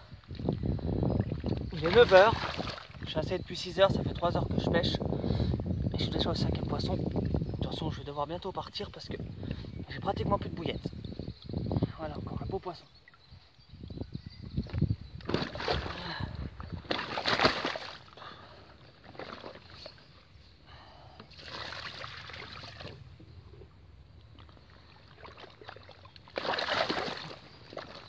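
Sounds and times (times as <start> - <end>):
wet rustling and sloshing: 1.2 - 3.2, 15.2 - 20.1, 21.3 - 23.1, 24.3 - 28.0.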